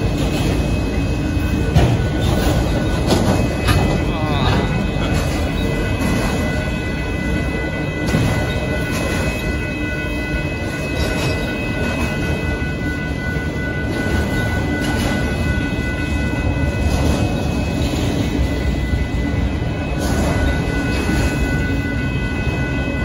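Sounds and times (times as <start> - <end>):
freight train rumbling past: 0.0 - 23.0
high-pitched tones: 2.2 - 16.6.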